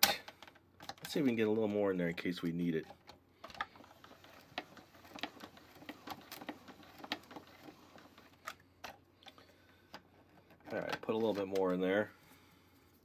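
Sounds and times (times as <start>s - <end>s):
plastic parts clicking: 0.0s - 1.2s, 2.8s - 11.8s.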